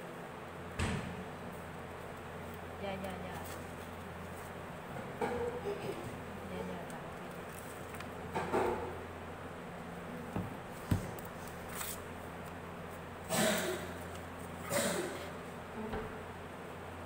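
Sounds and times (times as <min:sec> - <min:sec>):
paper rustling: 0:02.1 - 0:04.6, 0:06.8 - 0:08.2, 0:10.7 - 0:13.0.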